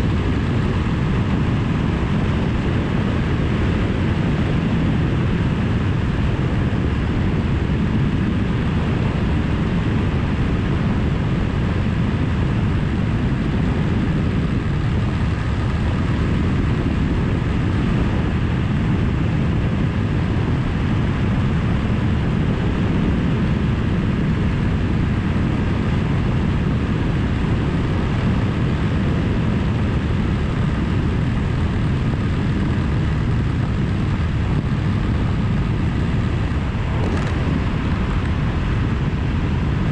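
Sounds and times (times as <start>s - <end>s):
rushing wind: 0.0s - 39.9s
motorcycle engine cruising: 25.6s - 39.9s.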